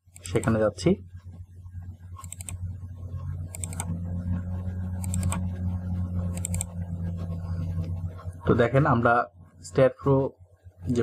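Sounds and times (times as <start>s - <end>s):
steady low hum: 0.0s - 11.0s
computer mouse clicking: 0.1s - 0.6s, 2.1s - 2.6s, 3.4s - 4.0s, 5.0s - 5.5s, 6.3s - 6.7s.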